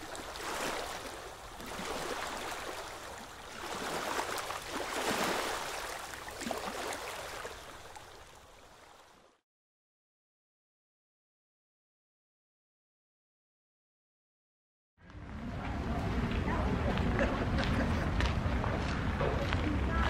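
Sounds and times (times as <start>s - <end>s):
small waves lapping at shore: 0.0s - 9.4s.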